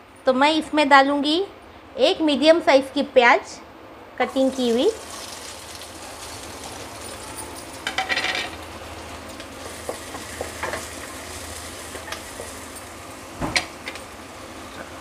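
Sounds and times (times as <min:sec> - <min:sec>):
onions sizzling in oil: 0:04.3 - 0:15.0
spatula knocking on pan: 0:09.6 - 0:10.9.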